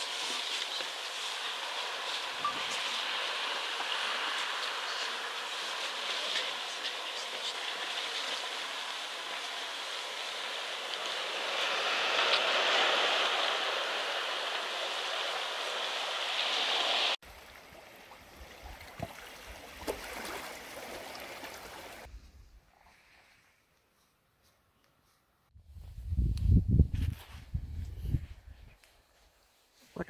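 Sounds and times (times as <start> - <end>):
gentle water: 0.0 - 22.1
water rushing along rocky shore: 0.0 - 22.1.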